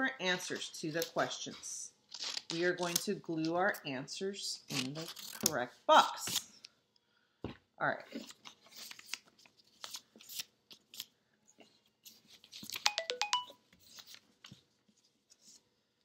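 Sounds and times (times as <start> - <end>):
paper rustling: 0.9 - 3.1, 8.1 - 11.1, 11.9 - 12.9, 13.7 - 15.7.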